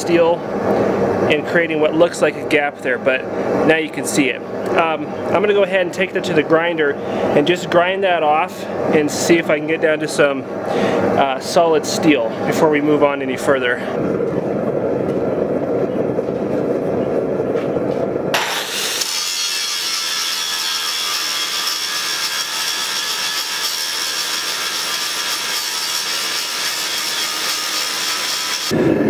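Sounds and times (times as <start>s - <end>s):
low steady rushing noise: 0.0s - 18.4s
angle grinder grinding steel: 18.4s - 28.8s.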